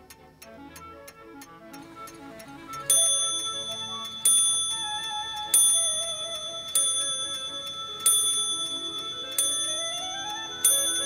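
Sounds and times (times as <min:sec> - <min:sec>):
clock bell striking: 0:02.9 - 0:11.0.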